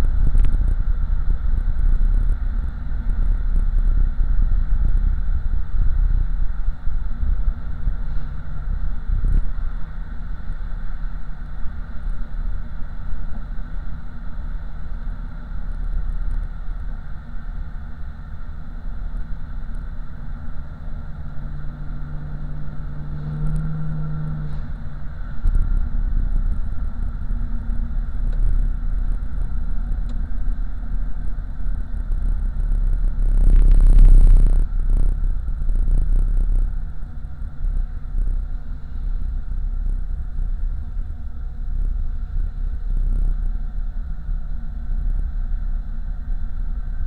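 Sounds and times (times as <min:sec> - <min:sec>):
car exhaust rumble: 0:00.0 - 0:47.0
road noise: 0:00.0 - 0:47.0
loud rush of noise: 0:32.0 - 0:40.5.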